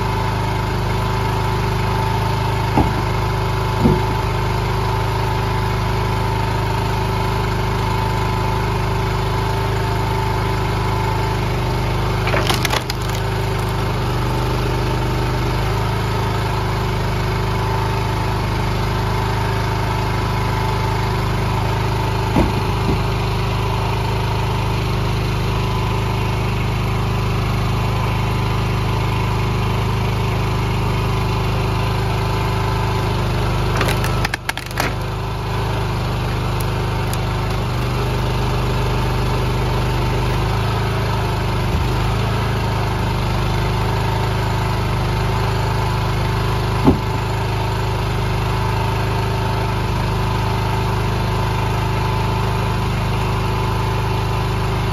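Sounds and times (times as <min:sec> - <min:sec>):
log splitter engine running: 0:00.0 - 0:54.9
wood splitting crackle: 0:02.6 - 0:04.4, 0:12.0 - 0:14.6, 0:33.5 - 0:40.6
wooden knocks: 0:02.8 - 0:03.2, 0:03.8 - 0:04.2, 0:12.2 - 0:13.8.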